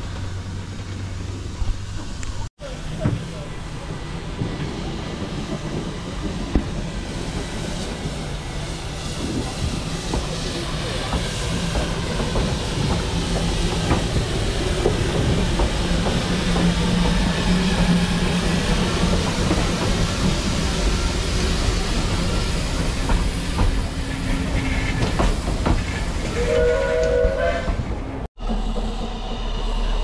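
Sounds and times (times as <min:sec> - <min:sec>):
train wheels rumbling and clicking: 0:00.0 - 0:30.0
steam hissing: 0:02.6 - 0:27.6.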